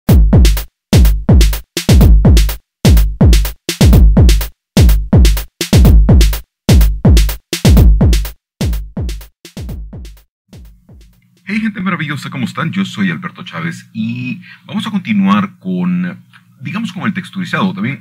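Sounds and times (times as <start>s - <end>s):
electronic music with deep hits: 0.1s - 11.2s.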